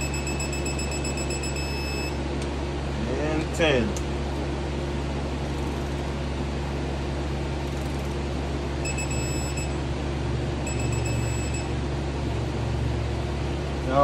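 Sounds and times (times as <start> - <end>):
torque wrench beeps: 0.0 - 2.2, 8.8 - 9.8, 10.6 - 11.8
steady low hum: 0.0 - 14.0.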